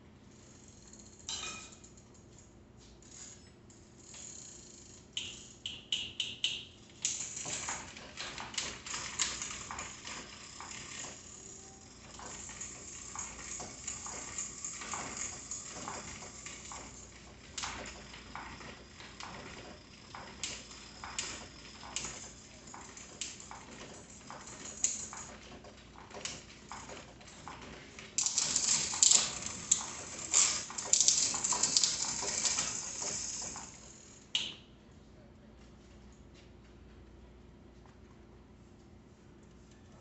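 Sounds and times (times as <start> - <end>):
bicycle chain rattling and ticking: 3.9 - 5.7, 6.9 - 34.4.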